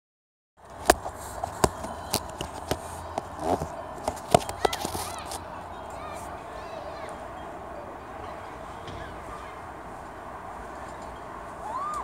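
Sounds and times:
outdoor background hum: 0.6s - 12.0s.

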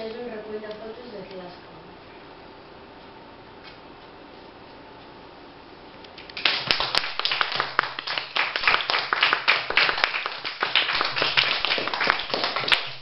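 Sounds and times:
audience clapping: 6.3s - 13.0s.

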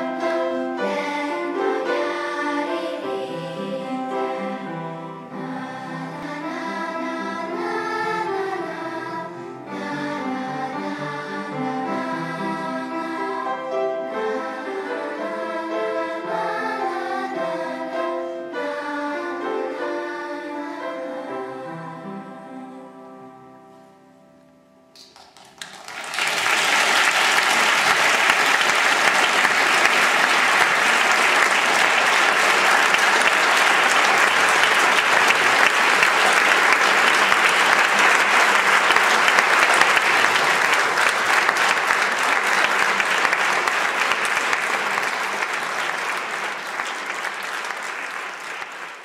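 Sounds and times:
audience applauding: 25.0s - 49.0s.

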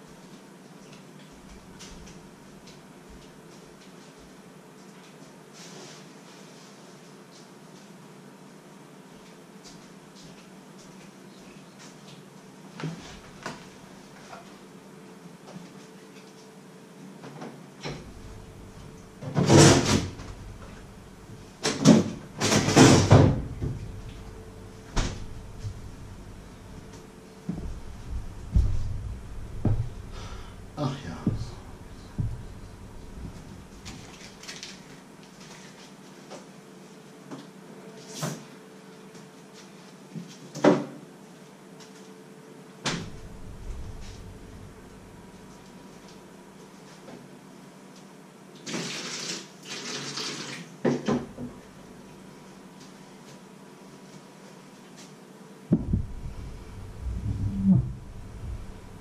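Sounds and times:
low rumble: 18.0s - 21.6s, 23.1s - 34.2s, 42.9s - 45.6s, 55.7s - 59.0s
cupboard doors knocking shut: 21.7s - 23.8s, 31.2s - 33.6s
fridge door and drawer knocks: 27.5s - 30.4s, 31.2s - 33.6s.

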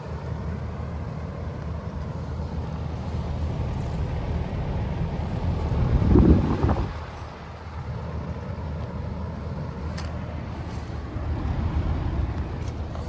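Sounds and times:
compressor low hum: 0.0s - 13.0s
fan rushing air: 0.0s - 13.0s.

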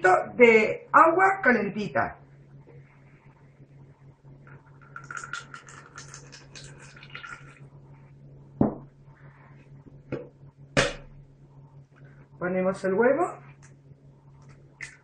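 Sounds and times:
water trickling into plastic cup: 4.4s - 7.6s.

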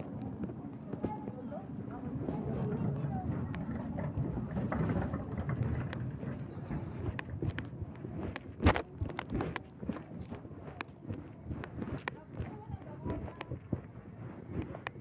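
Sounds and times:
scattered clicks: 2.4s - 13.9s.

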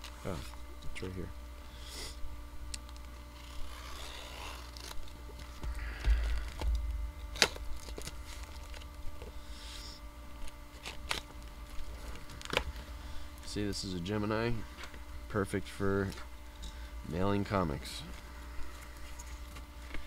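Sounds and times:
cardboard and tape tearing: 3.0s - 5.6s, 6.2s - 8.9s, 10.7s - 12.8s.

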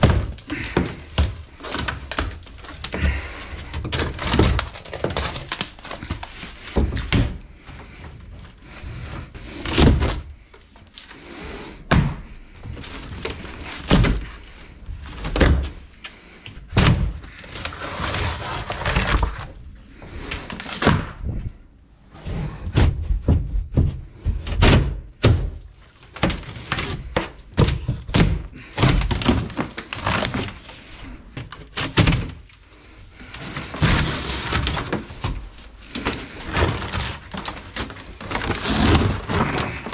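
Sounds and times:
material cracking: 0.0s - 6.9s, 33.3s - 39.9s
knocks and thuds on a wall: 11.9s - 12.8s, 22.6s - 29.5s.

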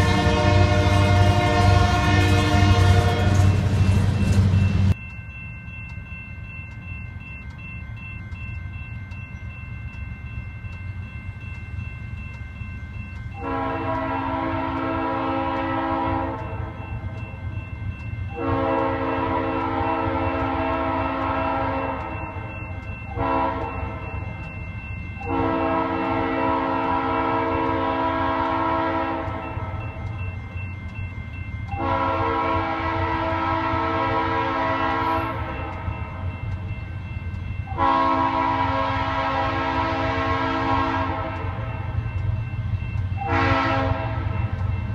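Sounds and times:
locomotive air horn blasts: 0.0s - 3.8s, 13.4s - 16.6s, 18.3s - 22.2s, 23.1s - 24.0s, 25.2s - 29.8s, 31.7s - 35.5s, 37.7s - 41.6s, 43.2s - 44.3s.

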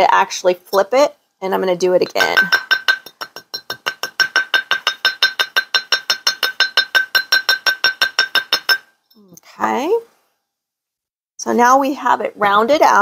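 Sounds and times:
mallet tapping on metal: 2.0s - 8.9s.

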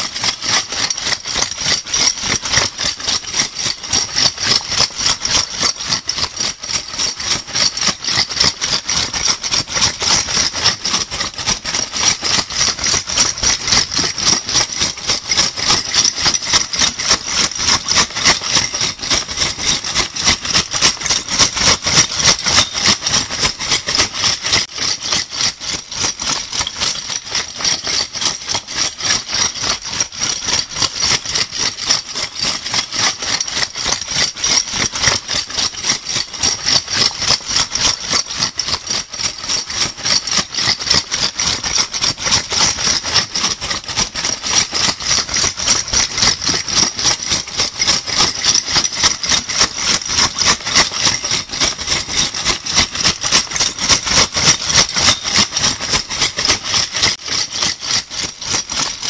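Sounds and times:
metal bottle caps rattling: 12.8s - 25.4s, 45.7s - 59.0s.

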